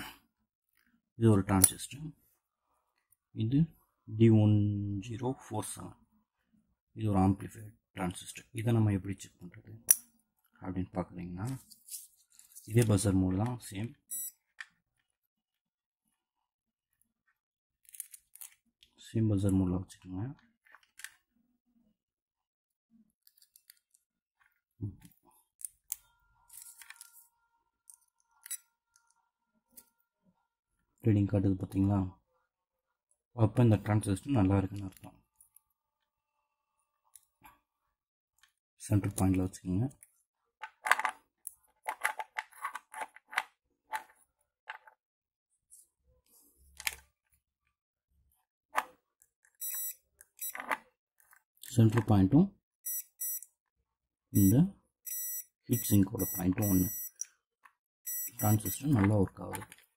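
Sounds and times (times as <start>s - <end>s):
multimeter buzzer tone: 49.6s - 50.6s, 52.8s - 53.5s, 54.4s - 57.2s, 58.1s - 58.9s.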